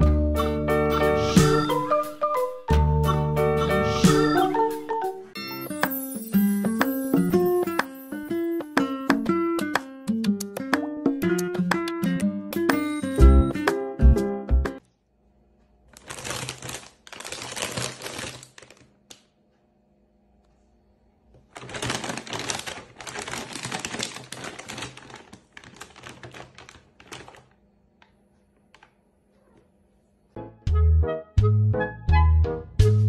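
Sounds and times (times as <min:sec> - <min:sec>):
plastic bag crinkling: 0:15.8 - 0:19.4, 0:21.4 - 0:27.8.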